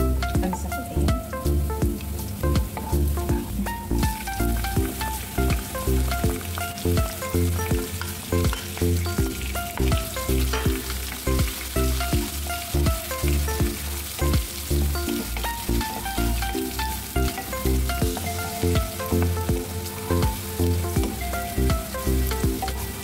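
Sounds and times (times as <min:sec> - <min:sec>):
background music with steady beat: 0:00.0 - 0:23.0
garlic and onion sizzling in oil: 0:00.1 - 0:23.0
wooden spatula stirring in pan: 0:04.2 - 0:23.0.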